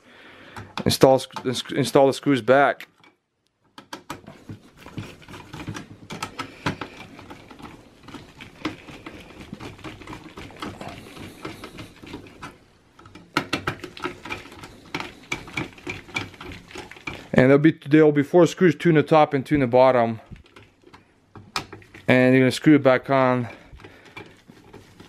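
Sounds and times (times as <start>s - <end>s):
screwdriver clicking and scraping: 2.9s - 17.4s, 23.7s - 25.0s.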